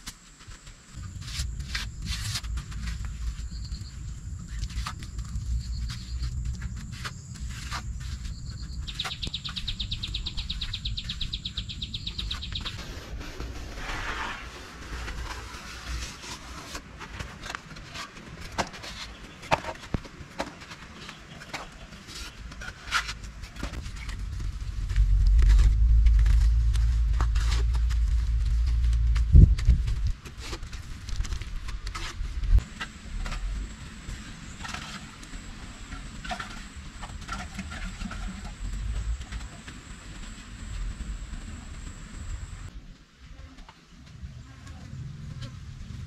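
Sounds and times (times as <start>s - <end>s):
light scraping of mud: 0.0s - 11.4s, 12.2s - 42.7s
low steady rumble: 23.4s - 46.0s.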